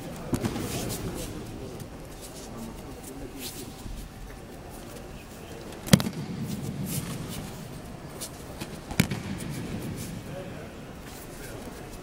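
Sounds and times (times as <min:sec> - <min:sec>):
breakfall slaps on mats: 0:05.9 - 0:07.4, 0:08.6 - 0:10.1
dull echoing thud: 0:08.9 - 0:09.8.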